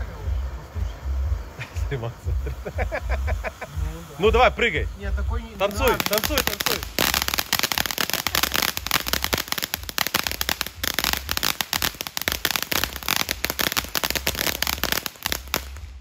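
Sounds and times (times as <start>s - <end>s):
firework crackling pops: 5.5s - 16.0s.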